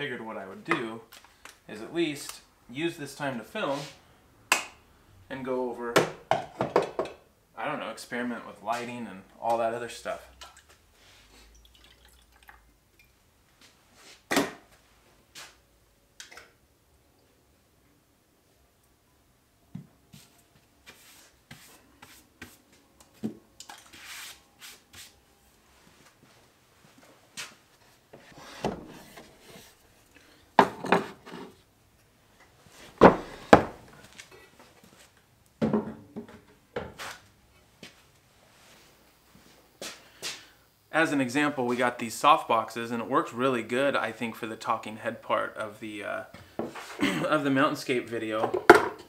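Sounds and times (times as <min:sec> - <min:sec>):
wood and tools knocking and clattering: 0:06.0 - 0:07.2, 0:30.6 - 0:31.6, 0:33.0 - 0:33.9, 0:35.6 - 0:37.0, 0:48.4 - 0:49.0
drink pouring into mug: 0:11.5 - 0:12.6
rubbing and shuffling: 0:20.1 - 0:23.2, 0:23.9 - 0:30.1.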